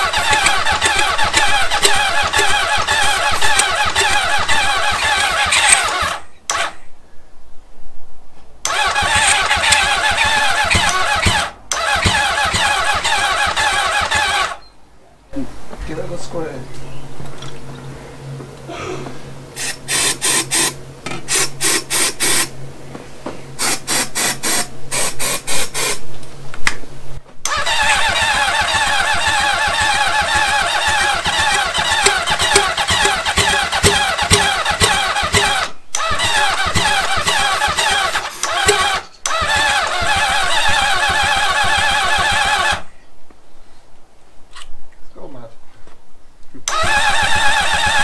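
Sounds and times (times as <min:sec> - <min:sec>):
motorcycle engine running: 0:00.0 - 0:06.0, 0:27.7 - 0:35.6
starting fluid spray hissing: 0:00.0 - 0:06.7, 0:08.7 - 0:14.6, 0:19.5 - 0:22.5, 0:23.6 - 0:26.0, 0:27.5 - 0:42.8
motorcycle starter cranking: 0:00.0 - 0:06.8, 0:08.7 - 0:14.7, 0:19.6 - 0:22.5, 0:27.5 - 0:42.9, 0:46.7 - 0:48.0.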